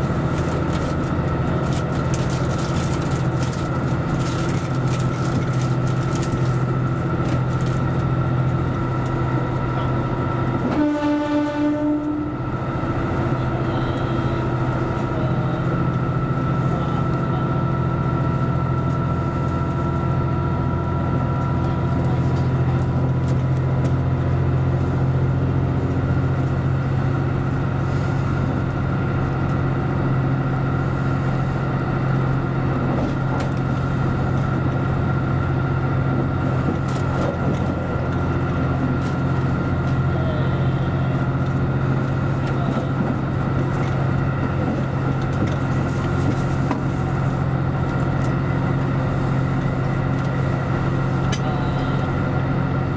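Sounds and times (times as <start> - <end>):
diesel engine droning: 0.0 - 52.9
train wheel and rail noise: 0.0 - 52.9.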